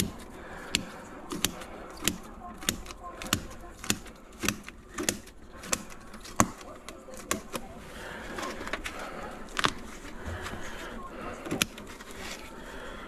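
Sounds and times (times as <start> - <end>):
hand cutters snipping tape: 0.0 - 7.7
rustling of torn wrapping: 0.0 - 12.9.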